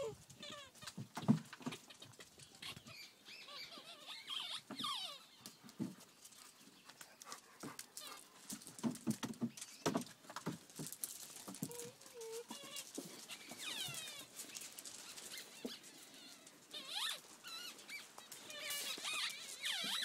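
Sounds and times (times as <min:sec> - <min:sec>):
puppy whine: 0:00.0 - 0:00.9, 0:02.5 - 0:05.5, 0:11.6 - 0:20.0
paws knocking on toys and pallet: 0:00.4 - 0:02.3, 0:04.7 - 0:20.0
puppy yelps: 0:02.6 - 0:05.4
puppies scuffling: 0:03.8 - 0:20.0.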